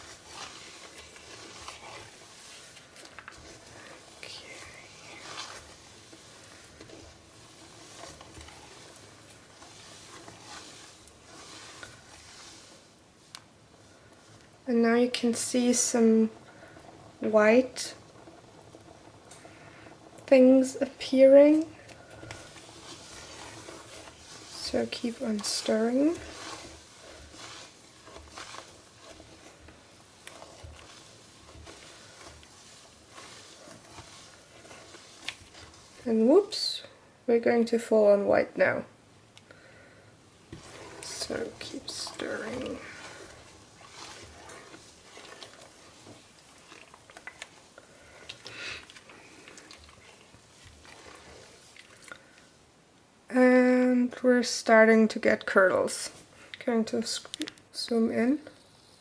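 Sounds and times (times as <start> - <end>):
liquid sloshing: 0.0 - 13.0, 15.3 - 37.0, 39.6 - 52.7
spatula stirring soap in a pot: 0.0 - 59.0.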